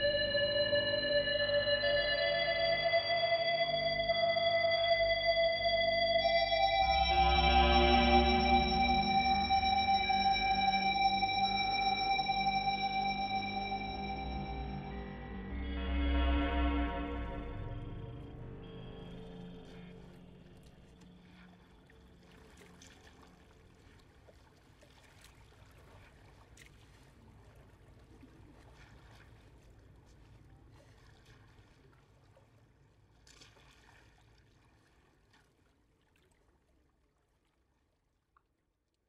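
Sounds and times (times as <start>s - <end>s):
faint water rumble: 15.7s - 38.4s.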